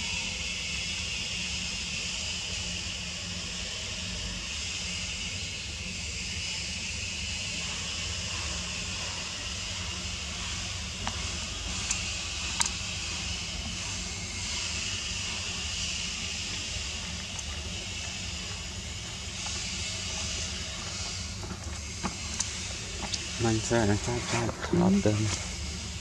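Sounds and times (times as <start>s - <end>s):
high-pitched outdoor hiss: 0.0s - 26.0s
low hum: 10.6s - 26.0s.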